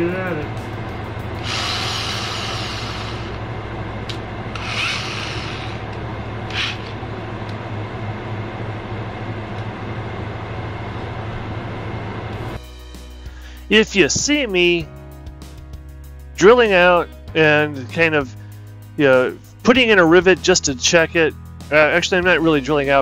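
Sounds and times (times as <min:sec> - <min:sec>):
steady low hum: 0:00.0 - 0:16.2, 0:17.0 - 0:19.8
drill chuck rasping: 0:01.4 - 0:03.4, 0:04.5 - 0:07.0
sharp clicks of drill chuck: 0:04.5 - 0:05.9.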